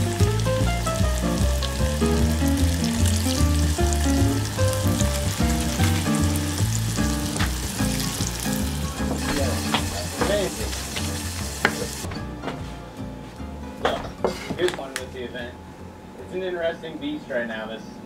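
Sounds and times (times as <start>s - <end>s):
fish sizzling in hot oil: 0.0s - 12.1s
background music with bass: 0.0s - 14.2s.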